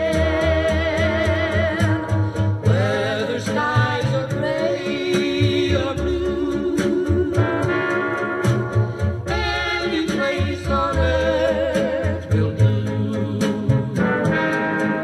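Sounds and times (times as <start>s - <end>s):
music with bass beat: 0.0s - 15.0s
person singing with vibrato: 0.0s - 15.0s.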